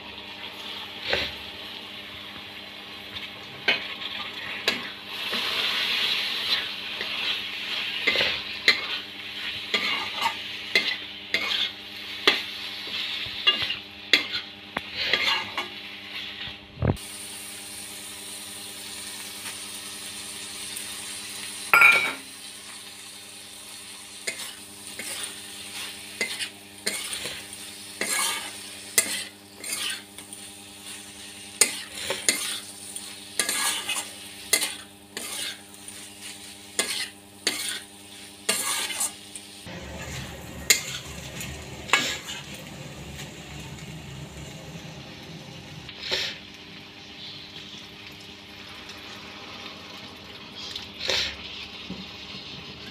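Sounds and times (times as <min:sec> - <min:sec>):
oil sizzling: 0:00.0 - 0:52.9
spatula scraping in a pan: 0:03.7 - 0:16.6, 0:23.8 - 0:44.5, 0:45.9 - 0:46.5, 0:50.6 - 0:52.7.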